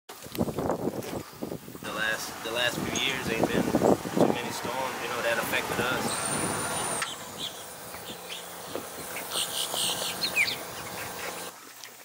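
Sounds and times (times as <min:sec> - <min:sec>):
insects buzzing: 0:01.8 - 0:11.5
bird chirp: 0:05.9 - 0:11.5.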